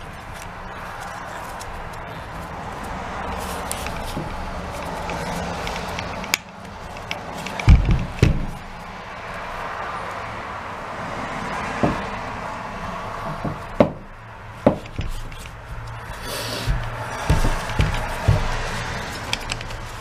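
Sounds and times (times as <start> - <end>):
gloved hands rubbing plastic: 0.0 - 7.7, 15.0 - 20.0
plastic knocks and clicks: 3.8 - 8.6, 14.6 - 15.9, 16.7 - 19.8.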